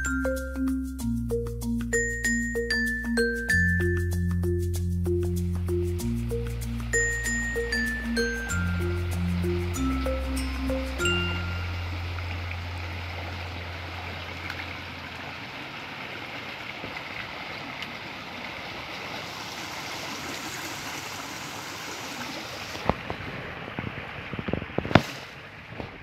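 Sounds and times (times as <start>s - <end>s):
river water rushing: 6.0s - 25.8s.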